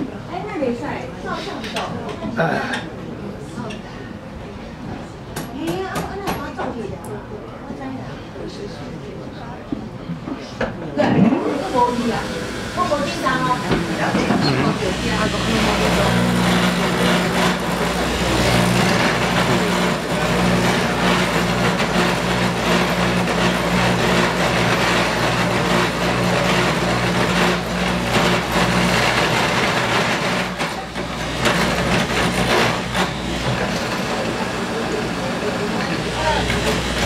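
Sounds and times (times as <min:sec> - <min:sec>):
motor hum: 0:11.0 - 0:37.0
cutter grinding wood: 0:11.1 - 0:37.0.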